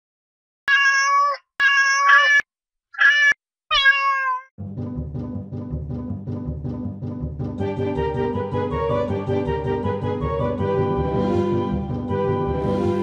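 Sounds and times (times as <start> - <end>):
cat meowing: 0.7 - 4.5
background music: 4.6 - 13.0.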